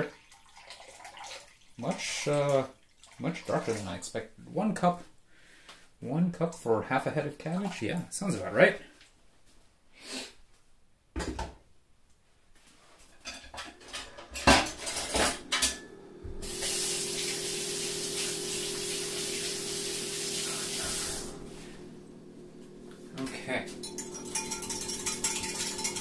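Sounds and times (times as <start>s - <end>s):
kitchen tap running: 0.0s - 4.2s, 13.4s - 26.0s
dishes and utensils clattering: 13.1s - 16.0s, 23.7s - 26.0s.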